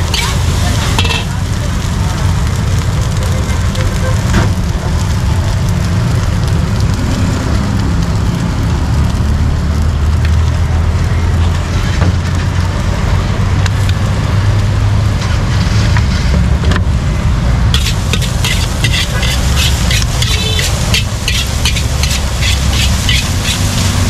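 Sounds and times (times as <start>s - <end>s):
gas burner rumble: 0.0s - 24.0s
rice sizzling in a wok: 0.0s - 24.0s
metal ladle clanking on wok: 0.1s - 1.3s.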